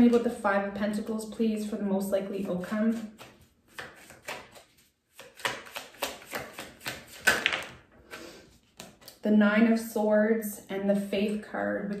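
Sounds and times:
cards shuffling: 0:02.5 - 0:09.2.

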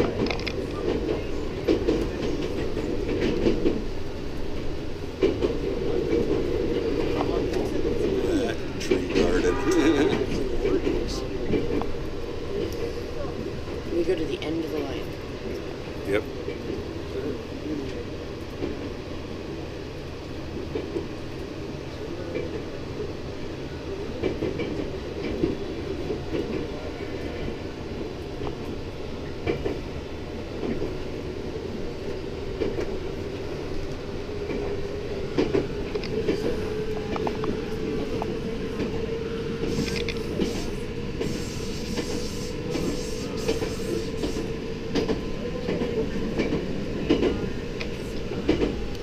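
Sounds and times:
train rumble: 0:00.0 - 0:49.0.

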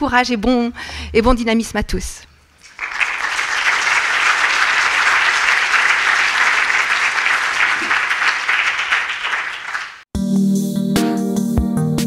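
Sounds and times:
audience applauding: 0:02.6 - 0:10.1
music: 0:10.1 - 0:12.0.

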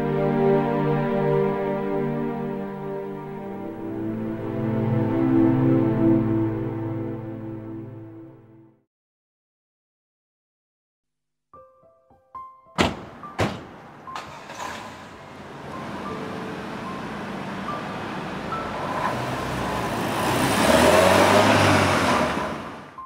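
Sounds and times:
sharp bangs: 0:12.8 - 0:15.5
car engine pulling away: 0:12.9 - 0:23.0.

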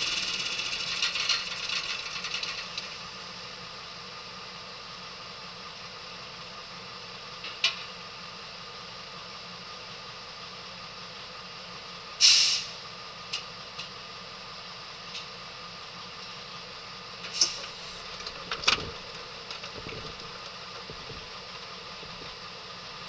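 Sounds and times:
burst of hissing air: 0:00.0 - 0:01.8, 0:12.2 - 0:12.8
engine idling: 0:00.0 - 0:23.0.

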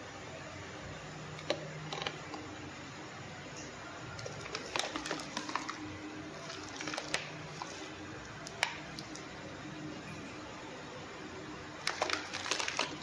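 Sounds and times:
plastic pouches crinkling: 0:01.4 - 0:02.4, 0:04.2 - 0:09.3, 0:11.8 - 0:13.0.

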